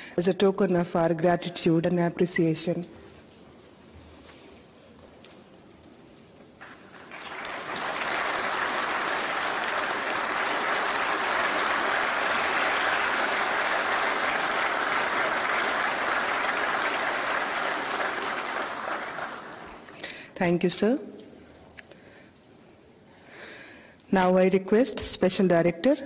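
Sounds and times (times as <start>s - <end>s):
audience applauding: 6.6s - 20.0s.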